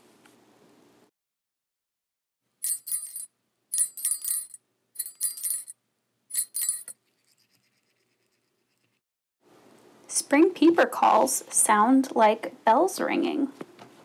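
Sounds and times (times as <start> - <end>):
small metal bells jingling: 2.6 - 7.0.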